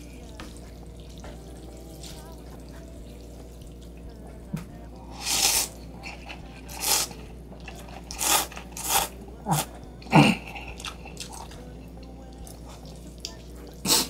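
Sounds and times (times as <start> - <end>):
slurping and chewing noodles: 5.1 - 14.0.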